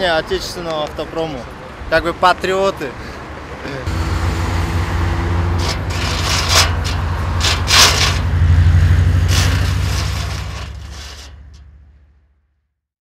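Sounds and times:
street traffic: 0:00.0 - 0:12.5
cars whooshing by: 0:02.9 - 0:11.8.

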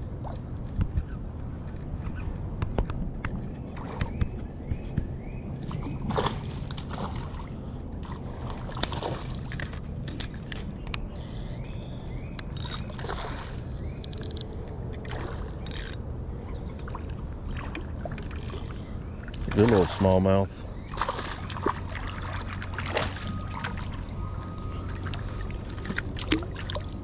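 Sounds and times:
reel clicks: 0:09.4 - 0:11.0, 0:12.3 - 0:13.0, 0:14.0 - 0:14.6, 0:15.6 - 0:16.0
spinning reel cranking: 0:12.5 - 0:12.8.

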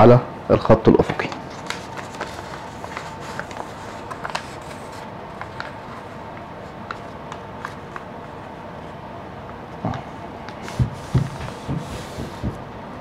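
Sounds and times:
paper rustling and crackling: 0:01.0 - 0:08.6.

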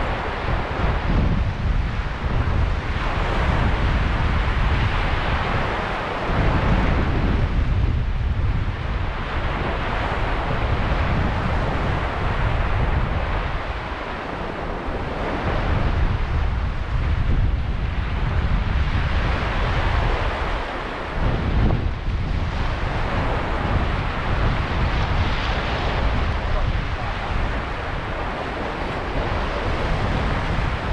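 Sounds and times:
wind rumbling on microphone: 0:00.0 - 0:30.9.

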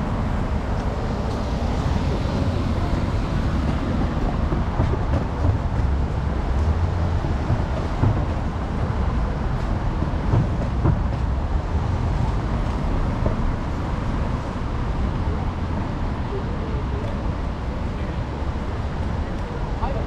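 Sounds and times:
city street traffic: 0:00.0 - 0:20.0.

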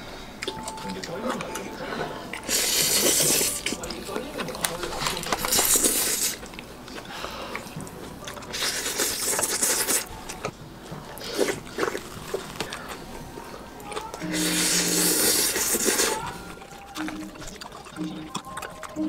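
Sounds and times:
chewing and mouth smacks: 0:00.4 - 0:19.0
loud hissing slurps: 0:02.4 - 0:03.8, 0:05.4 - 0:06.5, 0:08.5 - 0:10.1, 0:14.2 - 0:16.3.

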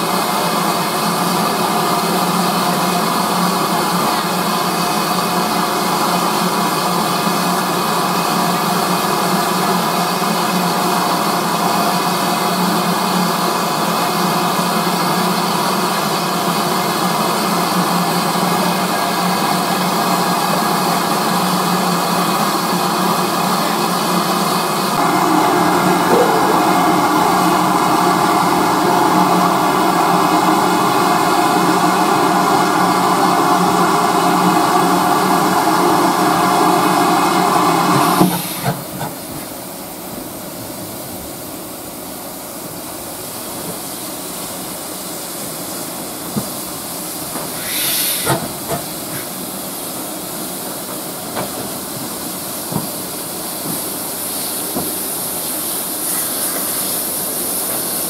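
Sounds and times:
steam hissing: 0:43.0 - 0:58.0.

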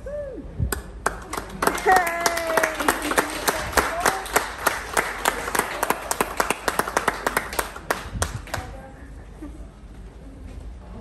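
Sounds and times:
people clapping: 0:00.7 - 0:09.0.

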